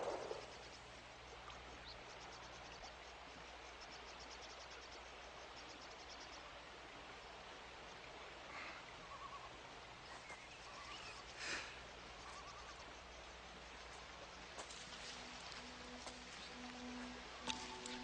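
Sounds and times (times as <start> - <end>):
short bird calls: 0.0 - 0.7, 8.5 - 12.9
insect chirring: 0.0 - 1.4, 10.6 - 16.0
rustle-like noise: 0.0 - 18.0.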